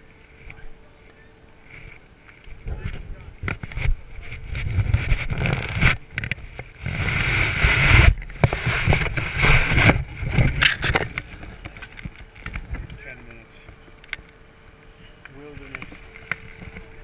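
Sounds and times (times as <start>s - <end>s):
wind buffeting microphone: 2.6s - 13.0s.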